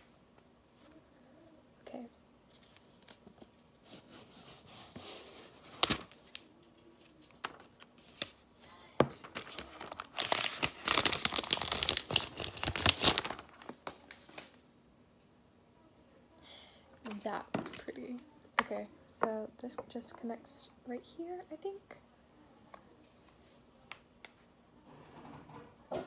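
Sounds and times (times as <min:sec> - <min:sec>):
plastic wrapping rustling and crinkling: 0:05.3 - 0:14.6
wrapping tearing: 0:09.3 - 0:13.8.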